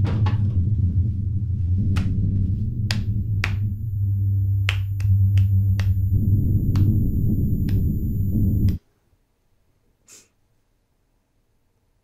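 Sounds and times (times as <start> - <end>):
loud low drone: 0.0 - 8.8.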